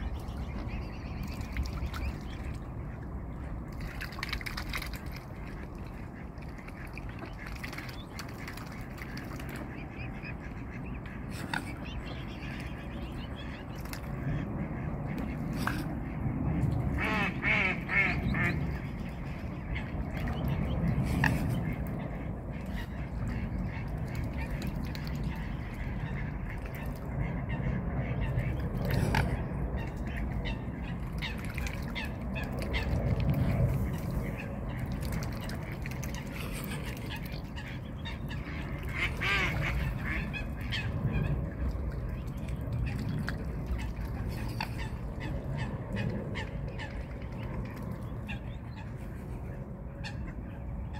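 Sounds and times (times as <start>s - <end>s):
steady low rumble: 0.0s - 50.9s
bills splashing at water surface: 3.7s - 10.1s
waterfowl nasal calls: 16.9s - 18.8s, 35.4s - 41.3s.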